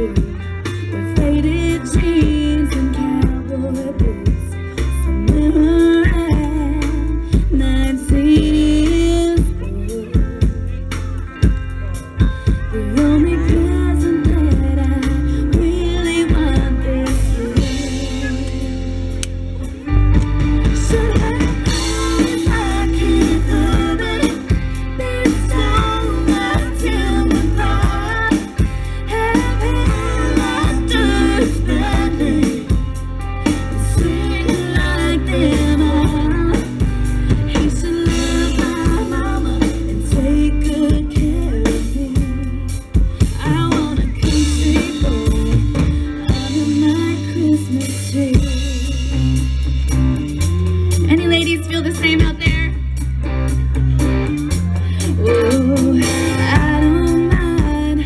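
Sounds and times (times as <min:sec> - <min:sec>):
woman singing into a microphone: 0:00.0 - 0:10.9, 0:12.2 - 0:19.0, 0:20.6 - 0:49.6, 0:54.8 - 0:58.0
drum kit: 0:00.0 - 0:58.0
guitar: 0:00.0 - 0:58.0.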